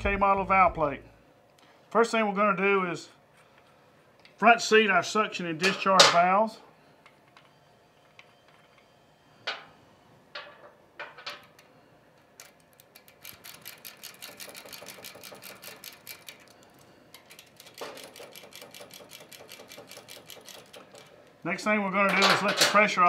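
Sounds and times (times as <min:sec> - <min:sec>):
rapid ratchet clicks: 0:12.4 - 0:21.1
wrench clicks and knocks: 0:17.2 - 0:21.1.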